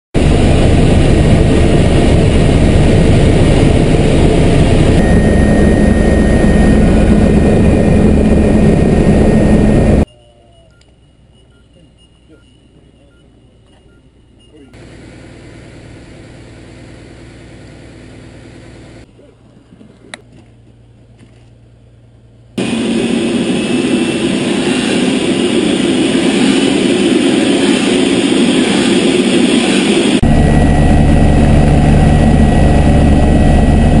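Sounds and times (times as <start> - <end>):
helicopter turbine and rotor: 0.2 - 10.1, 14.6 - 19.1, 22.6 - 34.0
low engine hum: 30.2 - 34.0.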